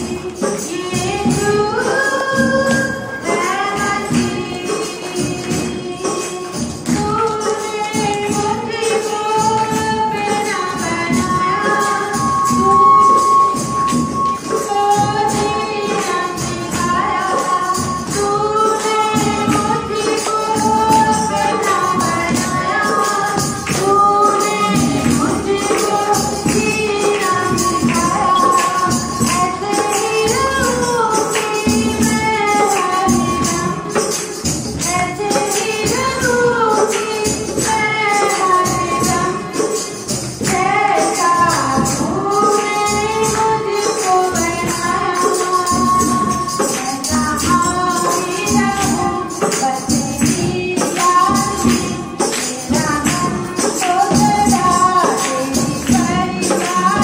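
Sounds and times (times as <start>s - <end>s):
congregation singing: 0.0s - 57.0s
tambourine: 0.0s - 57.0s
woman singing into microphone: 0.0s - 57.0s
hand clapping: 15.9s - 57.0s.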